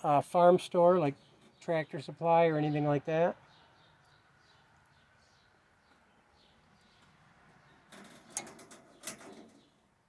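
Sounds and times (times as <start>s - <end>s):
metal clip clicking on wire mesh: 7.9s - 9.6s.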